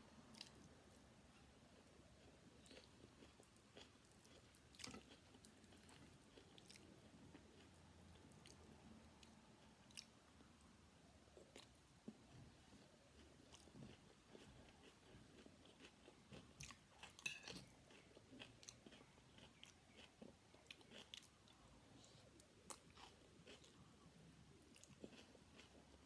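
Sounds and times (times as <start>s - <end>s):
chewing rice: 1.7s - 8.6s, 13.1s - 26.0s.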